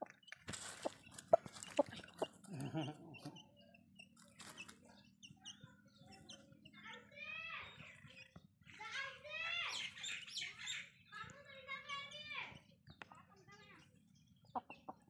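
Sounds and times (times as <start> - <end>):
rooster pecking ground: 0.0 - 2.6
rooster clucking: 0.7 - 3.4.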